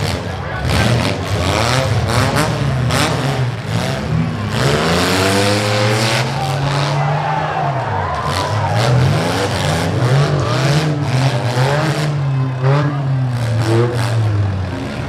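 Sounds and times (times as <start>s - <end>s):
car engines revving hard: 0.0s - 15.0s.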